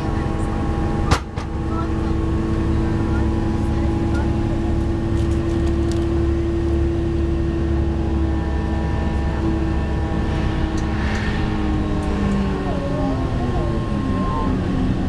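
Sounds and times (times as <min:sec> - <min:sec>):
train rumble: 0:00.0 - 0:15.0
steady tonal drone: 0:08.1 - 0:15.0.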